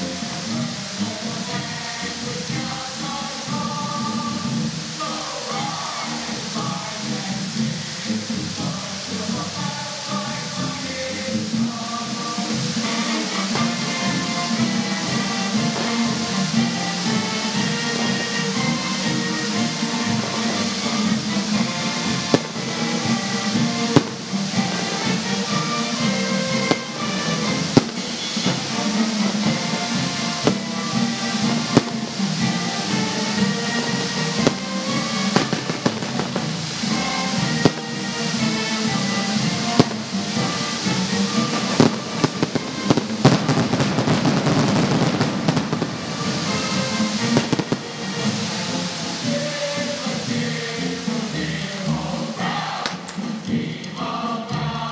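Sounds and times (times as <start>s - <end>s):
music: 0.0s - 54.9s
fireworks banging: 10.4s - 49.4s.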